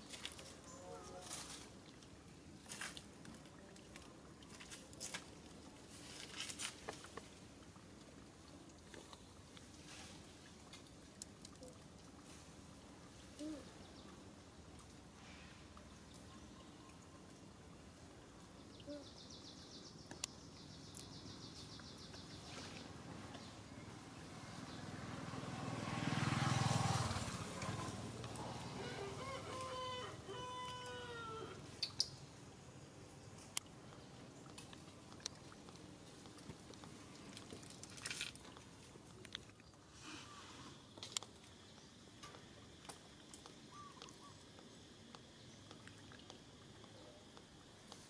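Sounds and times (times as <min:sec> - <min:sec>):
monkey scuffing and rustling on paving: 0:00.0 - 0:01.8, 0:04.5 - 0:07.4
motor vehicle passing: 0:23.0 - 0:31.6.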